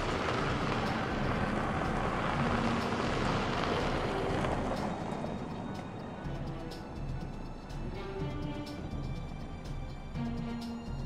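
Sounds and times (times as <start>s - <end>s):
trucks driving past on dirt road: 0.0s - 11.0s.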